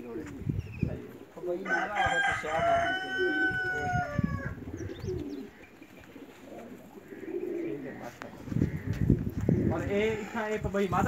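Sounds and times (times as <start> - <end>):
rooster crowing: 1.6 - 4.6.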